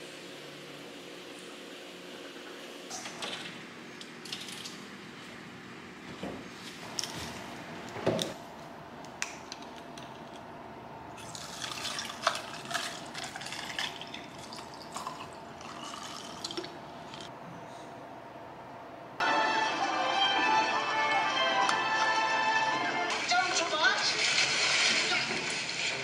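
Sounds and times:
drink pouring over ice: 11.2 - 17.2, 24.1 - 26.0.

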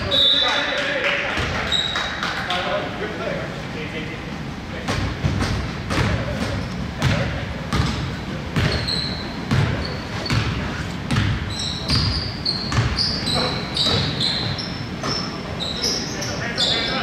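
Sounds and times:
sneakers squeaking on floor: 0.0 - 0.8, 1.4 - 2.3, 4.9 - 17.0
basketball bouncing on wooden floor: 4.9 - 8.9, 9.5 - 15.2.

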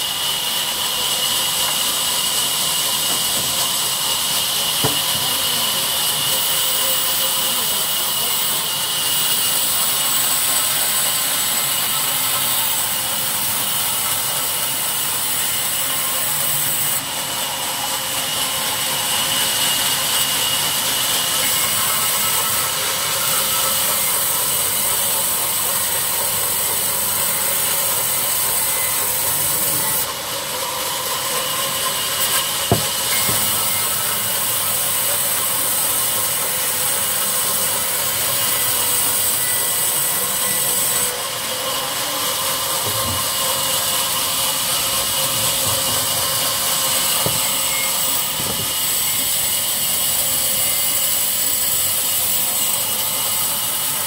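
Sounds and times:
band saw cutting log: 0.0 - 54.0
sharp knock: 32.7 - 33.4.

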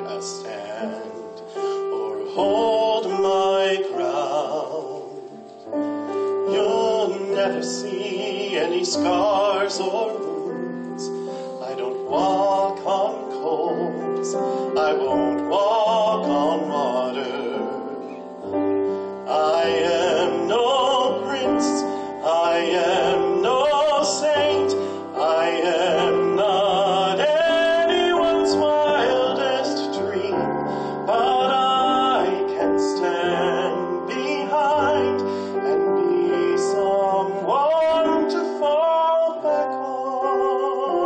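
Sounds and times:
man singing with vibrato: 0.0 - 41.0
piano accompaniment: 0.0 - 41.0.

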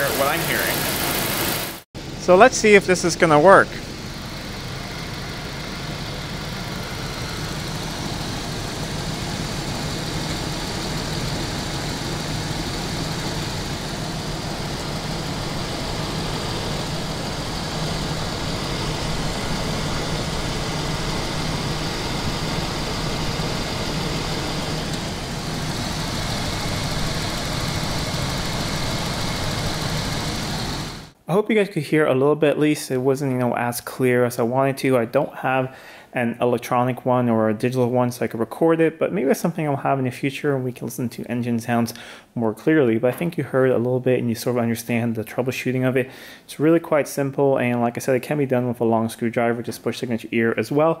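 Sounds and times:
engine running: 0.0 - 31.2.

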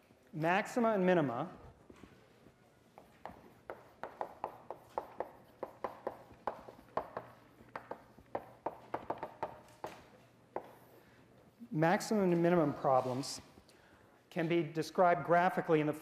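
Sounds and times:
chalk tapping on blackboard: 3.0 - 10.9.

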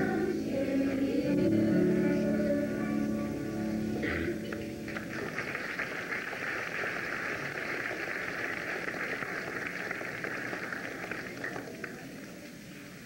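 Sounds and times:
children's choir singing: 0.0 - 3.4
audience applause: 4.9 - 12.4.

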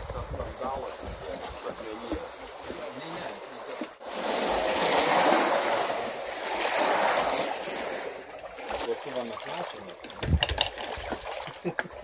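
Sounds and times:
wind on microphone: 0.0 - 1.7, 10.2 - 11.2
waves washing onto shore: 0.0 - 12.0.

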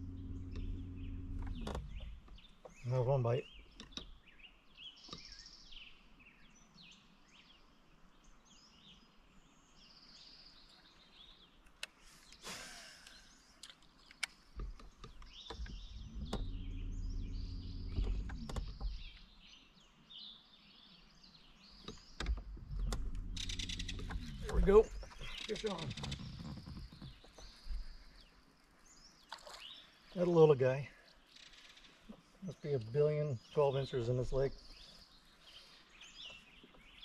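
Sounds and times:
trolling motor humming: 0.0 - 2.5, 14.6 - 19.2, 22.0 - 27.0
birds chirping and singing: 0.0 - 37.0.

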